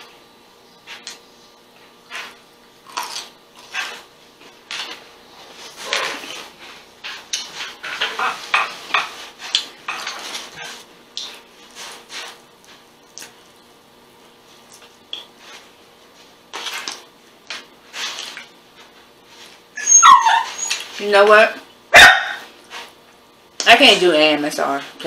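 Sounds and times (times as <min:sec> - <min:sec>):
chewing food: 0:02.1 - 0:04.1, 0:10.4 - 0:13.7.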